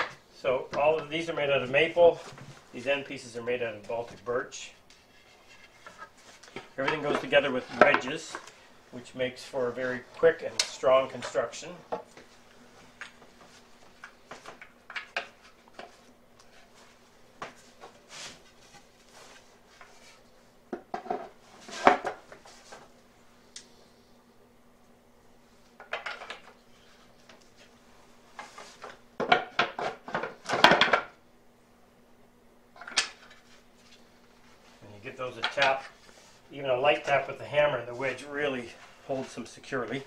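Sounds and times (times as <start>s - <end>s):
wooden parts knocking together: 25.8s - 26.5s, 29.2s - 31.2s.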